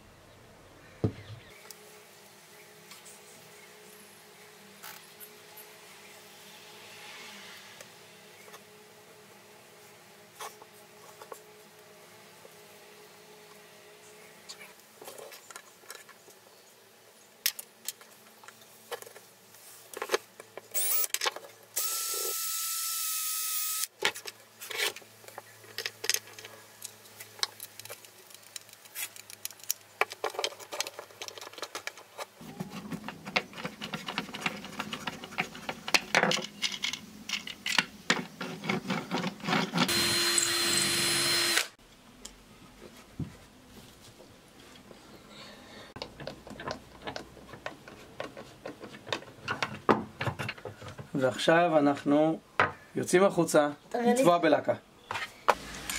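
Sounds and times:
cordless drill running: 0:20.8 - 0:21.1, 0:21.8 - 0:23.9, 0:39.9 - 0:41.8
wooden toy parts clicking: 0:27.4 - 0:32.3.

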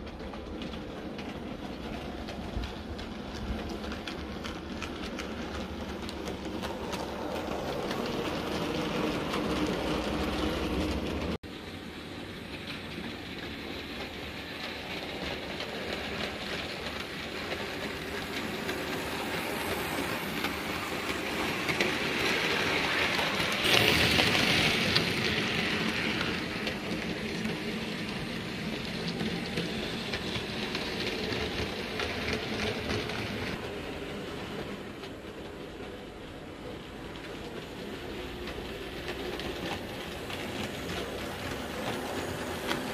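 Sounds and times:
wheels clicking over track: 0:00.0 - 0:42.9
model train motors whirring: 0:02.6 - 0:42.9.

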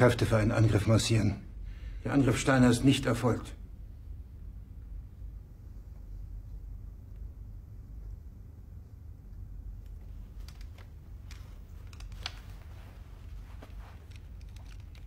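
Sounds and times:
low hum: 0:00.0 - 0:15.0
faint clicks and rustles: 0:05.7 - 0:15.0.

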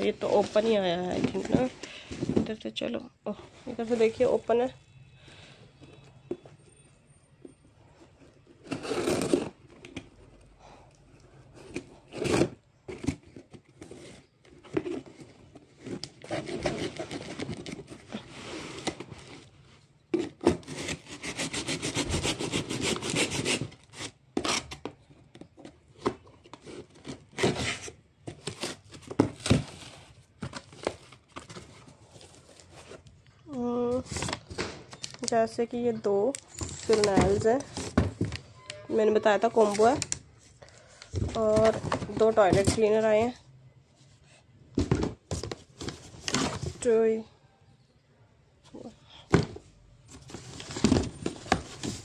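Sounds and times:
cardboard ripping: 0:08.6 - 0:09.6
tool scraping packing tape: 0:08.6 - 0:09.6, 0:20.2 - 0:24.9.

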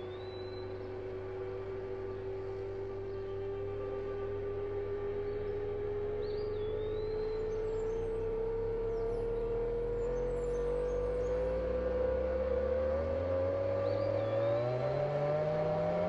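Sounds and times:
faint bird chirps: 0:00.0 - 0:01.3, 0:04.0 - 0:12.7
rising electronic drone: 0:00.0 - 0:16.0.

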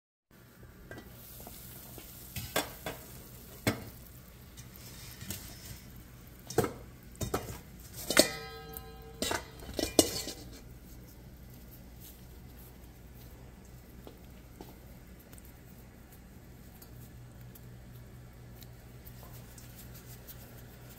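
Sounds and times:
metal cookware clanking: 0:04.6 - 0:10.8.

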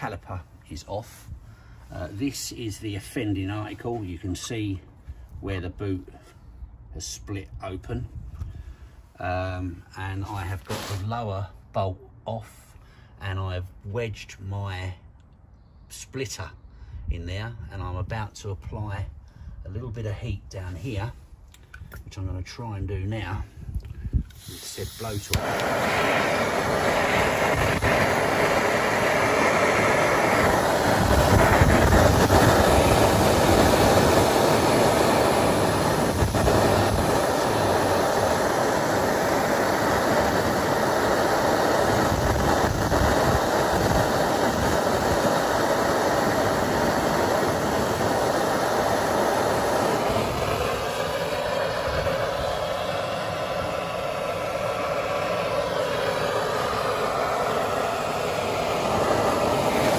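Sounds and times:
blowtorch hissing: 0:10.6 - 0:11.2, 0:24.3 - 0:59.9.

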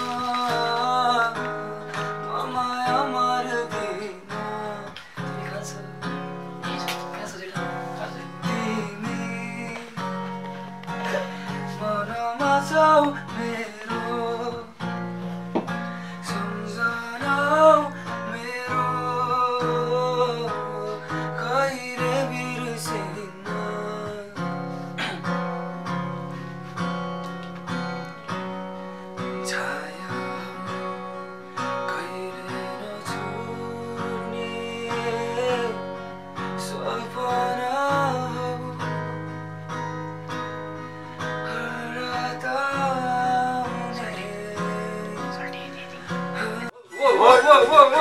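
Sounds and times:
man singing: 0:00.0 - 0:15.2, 0:16.1 - 0:25.2, 0:29.2 - 0:39.3, 0:41.2 - 0:48.0
acoustic guitar strumming: 0:00.0 - 0:48.0.

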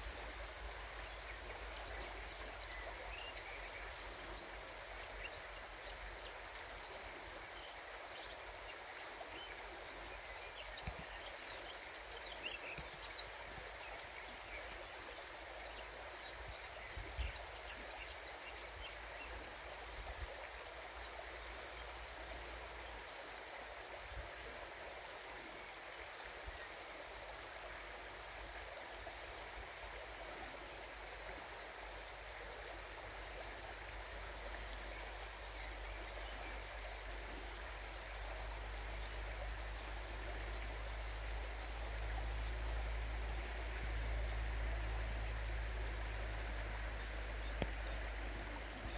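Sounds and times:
river water rushing: 0:24.6 - 0:48.9.

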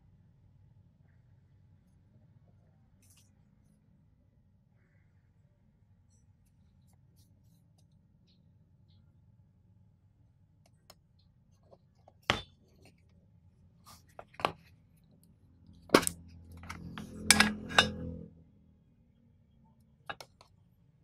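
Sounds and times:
metal tin taps and clicks: 0:16.0 - 0:18.0.

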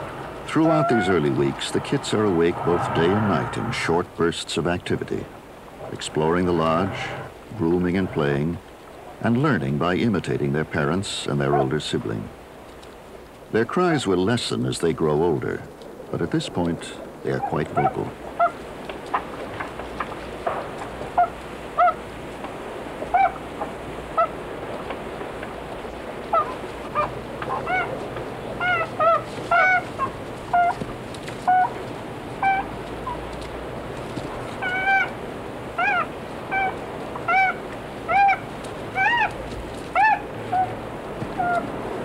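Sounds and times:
beaver kits crying: 0:00.0 - 0:03.6, 0:26.3 - 0:28.0, 0:28.6 - 0:30.8, 0:34.6 - 0:35.2, 0:35.8 - 0:40.8, 0:41.4 - 0:41.7.

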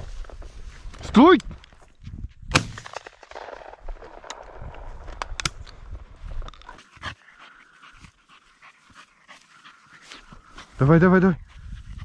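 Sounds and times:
grass rustling: 0:00.0 - 0:12.0
dog panting: 0:06.7 - 0:12.0.

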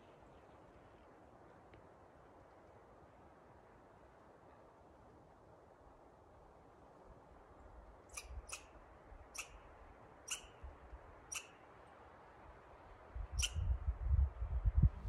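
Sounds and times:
high-pitched animal chirps: 0:08.1 - 0:08.7, 0:09.3 - 0:09.6, 0:10.3 - 0:10.6, 0:11.3 - 0:11.6, 0:13.4 - 0:13.6
low microphone rumble: 0:13.7 - 0:15.0.

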